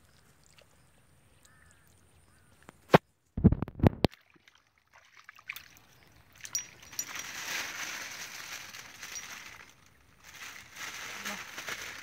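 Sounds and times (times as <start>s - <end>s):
plastic bag crinkling: 6.6s - 12.0s.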